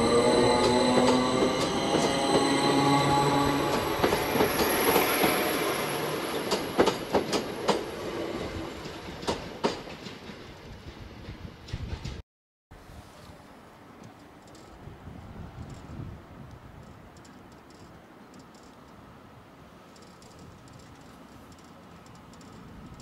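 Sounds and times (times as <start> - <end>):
train motors humming: 0.0 - 10.0
wheels clicking over rail joints: 6.3 - 7.9, 15.6 - 19.0, 19.8 - 23.0.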